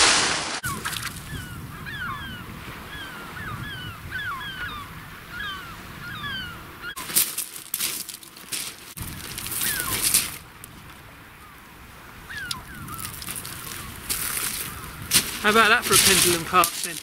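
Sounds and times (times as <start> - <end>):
flock of birds calling: 0.6 - 7.2, 9.0 - 10.4, 12.2 - 17.0
sharp crunching: 7.0 - 10.9, 12.5 - 17.0.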